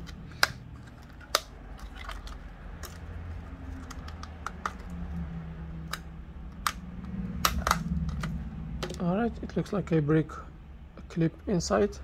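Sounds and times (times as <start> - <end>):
pry tool clicking on plastic shell: 5.8 - 9.0.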